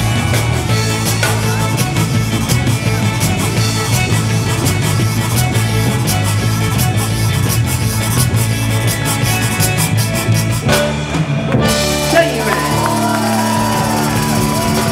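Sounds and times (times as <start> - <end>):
band playing live: 0.0 - 14.9
drum kit beat: 0.0 - 14.9.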